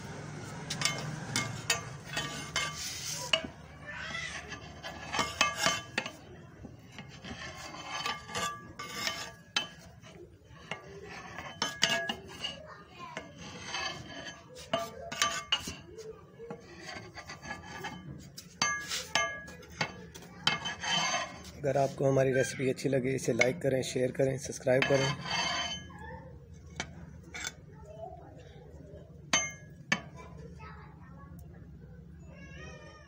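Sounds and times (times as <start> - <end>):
metal spoon scraping rice pot: 0.7 - 12.6, 13.2 - 15.9, 16.5 - 22.0, 24.5 - 26.0.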